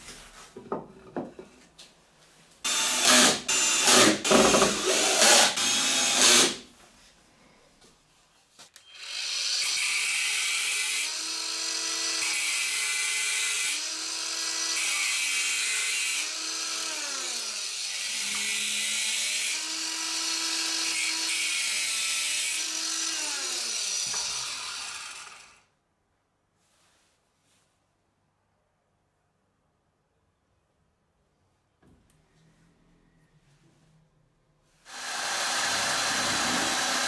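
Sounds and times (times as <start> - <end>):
angle grinder cutting metal: 2.7 - 6.6, 8.8 - 25.6, 34.9 - 37.0.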